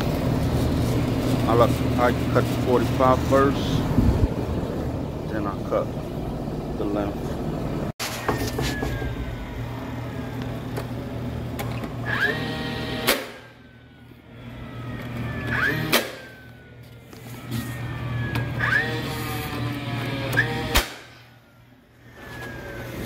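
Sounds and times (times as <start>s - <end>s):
nailer motor whining: 8.0s - 23.0s
nail gun firing sharp crack: 13.0s - 13.5s, 15.8s - 16.3s, 20.4s - 21.3s.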